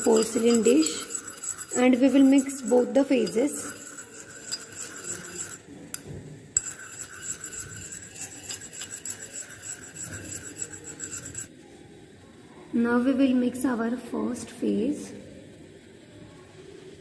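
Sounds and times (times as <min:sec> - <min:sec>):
glass rod scraping porcelain dish: 0:00.0 - 0:11.5.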